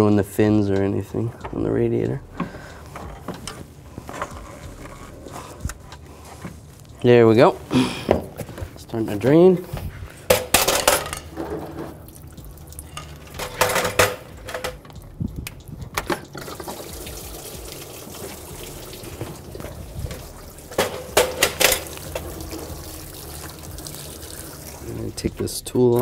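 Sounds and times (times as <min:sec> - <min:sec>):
knocks and rattles: 0:10.3 - 0:16.7, 0:19.6 - 0:22.5
coolant stream into plastic pan: 0:16.4 - 0:25.3.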